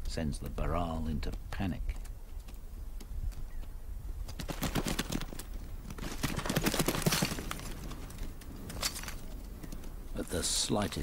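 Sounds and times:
hooves clattering over rocks: 0.0 - 11.0.

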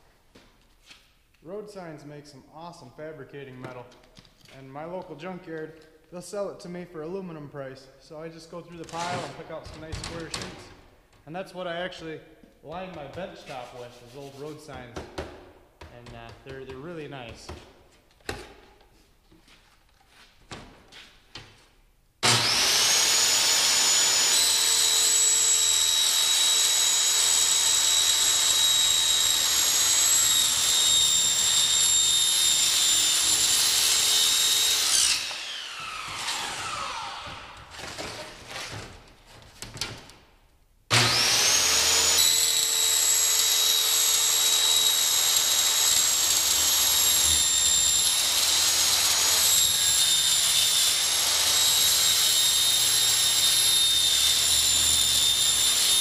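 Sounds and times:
circular saw cutting metal: 22.2 - 37.2, 41.0 - 56.0.

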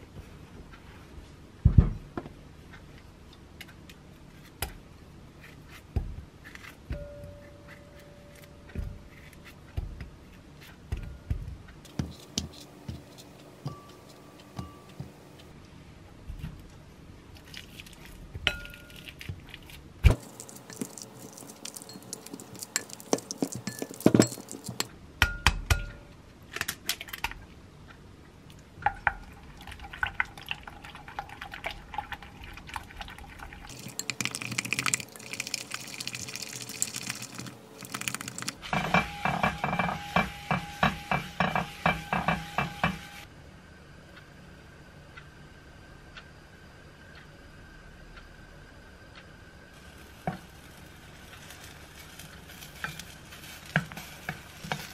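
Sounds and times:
spatula stirring batter: 20.2 - 24.9.

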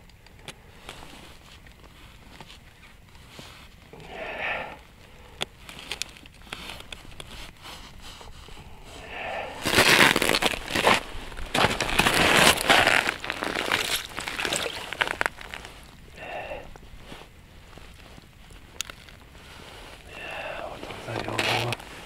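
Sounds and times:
winter clothing rustling: 0.6 - 22.0
snow crunching: 6.5 - 22.0.

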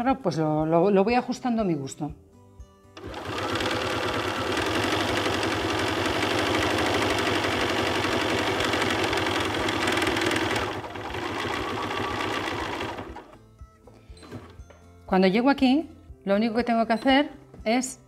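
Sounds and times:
sewing machine stitching: 3.0 - 13.4.

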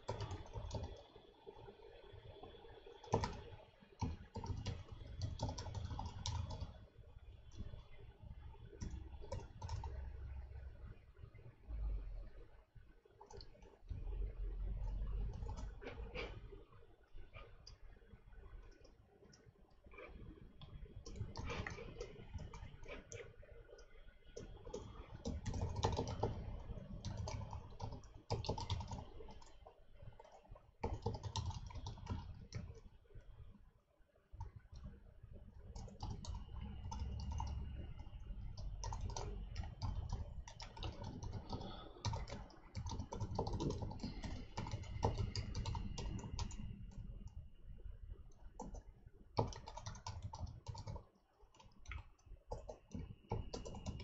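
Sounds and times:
typing on computer keyboard: 0.0 - 1.2, 2.9 - 6.8, 8.7 - 10.1, 13.2 - 14.0, 14.8 - 16.4, 20.0 - 32.9, 35.7 - 47.1, 48.3 - 54.0.

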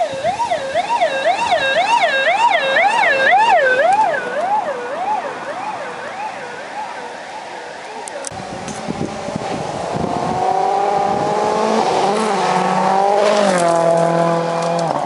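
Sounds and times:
siren on fast yelp: 0.0 - 8.1.

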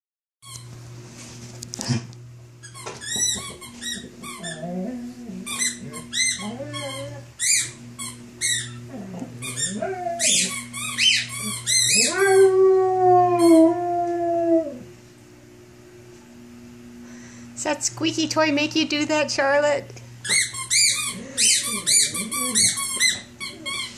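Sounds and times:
dog howling: 4.4 - 7.8, 8.6 - 14.9, 20.8 - 23.9
squeaky toy squeaking: 5.5 - 8.8, 9.5 - 12.1, 20.2 - 23.9.

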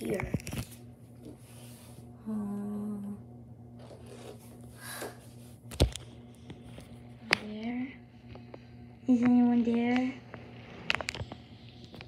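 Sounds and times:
steady low hum: 0.0 - 12.0
person humming: 2.2 - 3.2.

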